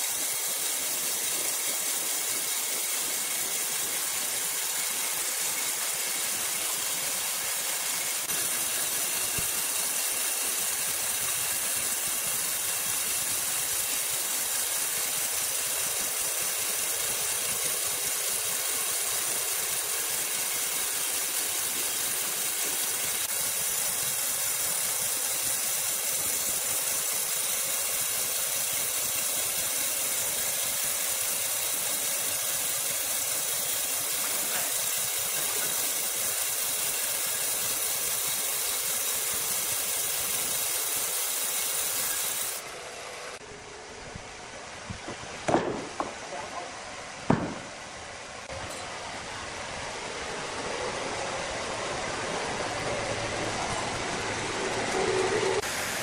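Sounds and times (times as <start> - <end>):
band saw cutting log: 0.0 - 43.4, 53.8 - 56.0
faint high whine: 48.2 - 56.0.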